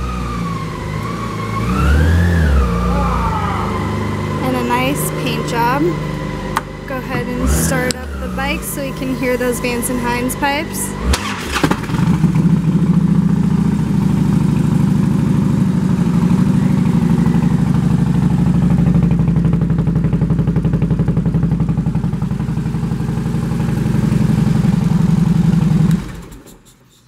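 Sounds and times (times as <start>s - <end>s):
motorcycle engine idling: 2.3s - 26.3s.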